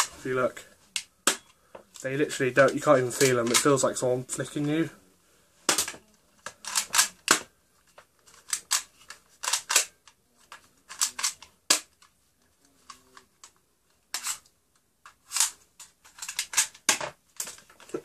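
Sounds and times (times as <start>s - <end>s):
toy pistol plastic snaps: 5.7s - 7.5s, 8.5s - 10.2s, 10.9s - 12.0s.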